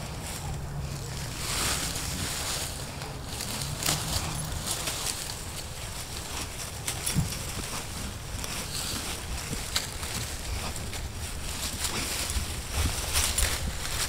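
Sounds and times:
dry leaves rustling and crackling: 0:00.0 - 0:14.0
steady low rumble: 0:00.0 - 0:14.0.

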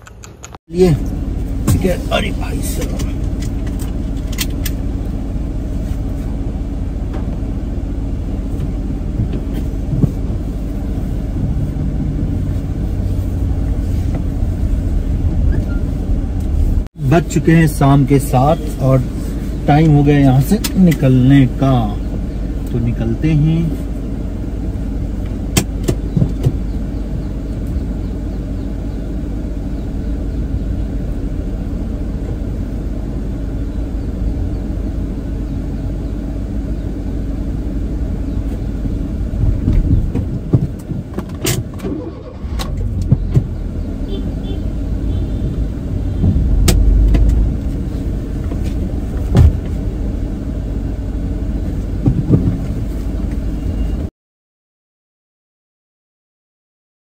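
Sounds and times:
sharp clicks and knocks: 0:00.0 - 0:00.6, 0:46.2 - 0:47.8
car engine and road rumble: 0:00.0 - 0:54.1.

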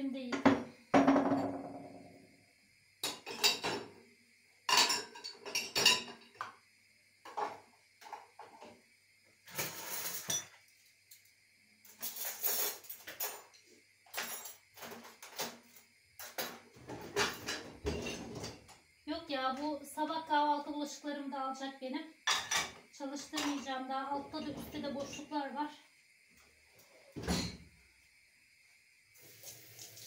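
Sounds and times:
dishes clinking in dishwasher racks: 0:03.0 - 0:03.9, 0:04.7 - 0:06.5, 0:09.5 - 0:10.6, 0:14.1 - 0:18.7, 0:22.3 - 0:25.3, 0:27.2 - 0:27.7.

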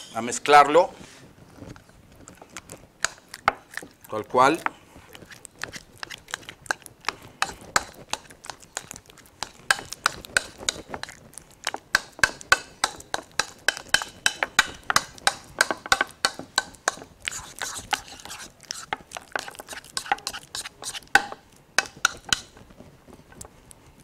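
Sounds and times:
fork scraping a bowl: 0:04.5 - 0:15.4, 0:16.0 - 0:22.6.

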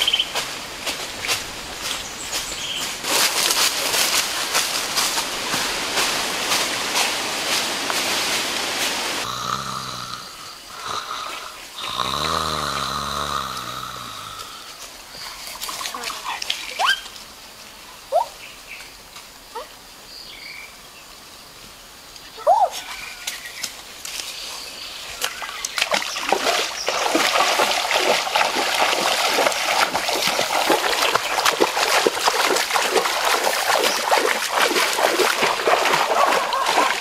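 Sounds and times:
brushing through undergrowth: 0:00.0 - 0:09.2, 0:23.3 - 0:37.0
crackling rustling noise: 0:00.0 - 0:09.2, 0:23.3 - 0:24.6
footsteps crunching dry leaves: 0:00.0 - 0:09.2, 0:26.3 - 0:37.0
person snoring: 0:09.2 - 0:14.7.

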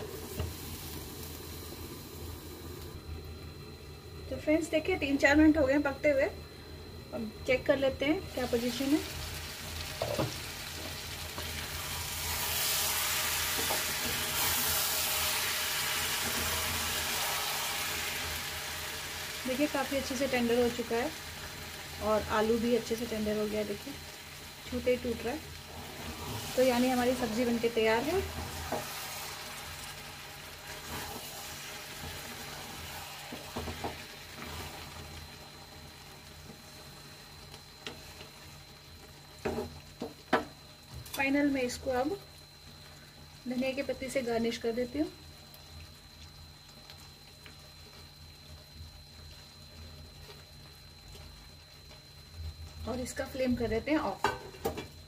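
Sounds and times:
curry sizzling in a pan: 0:00.0 - 0:03.6, 0:07.2 - 0:55.0.

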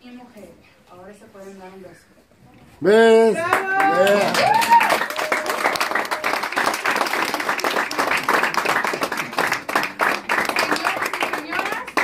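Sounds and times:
person cheering: 0:03.4 - 0:06.3
crowd applause: 0:03.4 - 0:12.0.

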